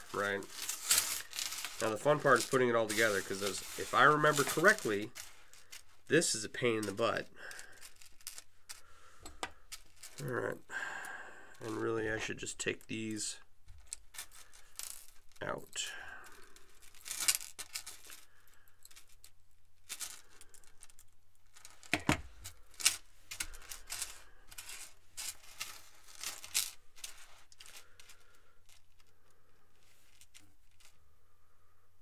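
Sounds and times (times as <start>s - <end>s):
chainmail rings clinking: 0.0s - 5.3s.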